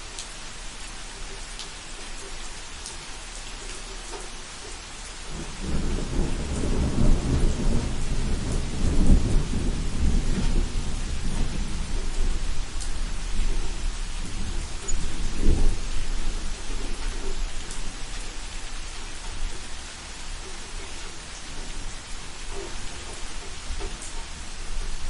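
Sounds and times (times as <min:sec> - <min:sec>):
rain hiss: 0:00.0 - 0:25.0
thunder rumble: 0:05.3 - 0:25.0
water drips: 0:11.2 - 0:24.4.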